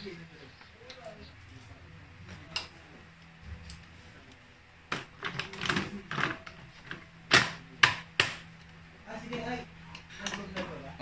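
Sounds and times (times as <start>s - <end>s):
scraping and clicking of parts: 3.6s - 8.4s.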